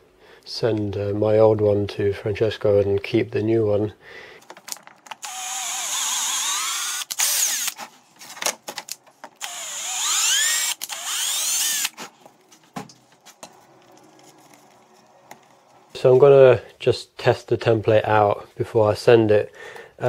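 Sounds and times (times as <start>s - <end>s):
handling clicks and knocks: 4.4s - 5.2s
cordless drill boring into board: 5.2s - 7.8s, 9.4s - 12.0s.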